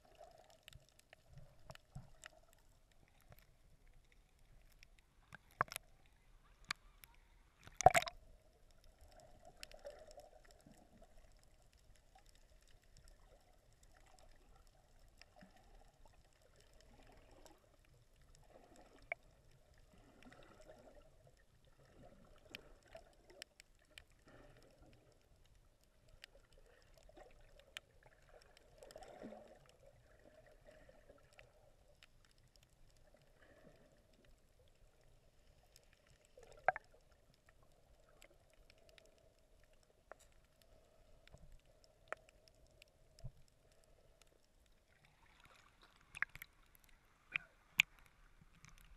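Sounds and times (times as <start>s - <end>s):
small clicks underwater: 0.0s - 48.9s
water splashing against camera: 7.6s - 8.2s, 36.3s - 37.6s, 38.2s - 48.9s.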